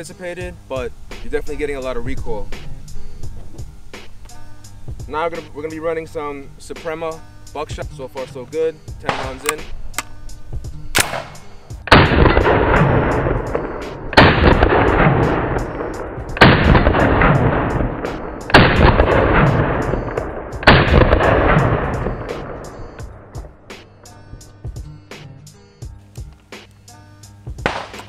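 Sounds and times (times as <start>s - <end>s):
shotgun shots with echo: 9.0s - 9.7s, 11.0s - 23.4s, 27.6s - 28.0s.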